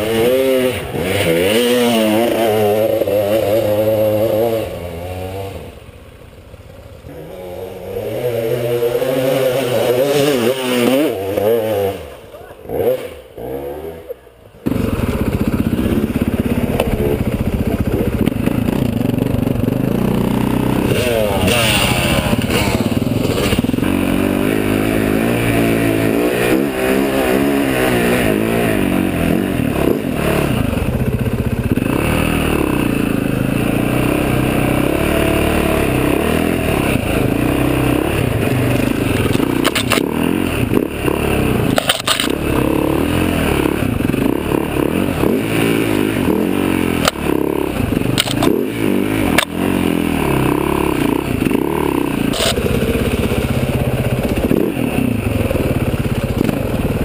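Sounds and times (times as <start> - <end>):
dirt bike engine revving: 0.0 - 57.0
bike knocking and clattering: 39.3 - 40.1.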